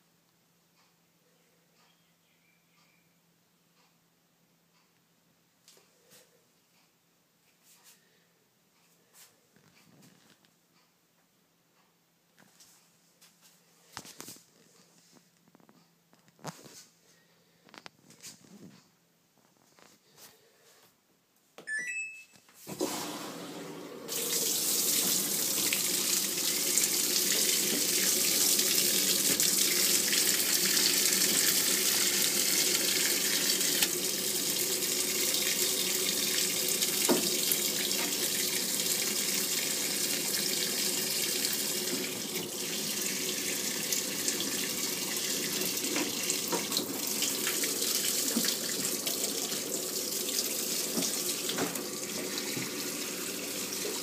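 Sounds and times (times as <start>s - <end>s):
washing machine beeps: 21.6s - 22.4s.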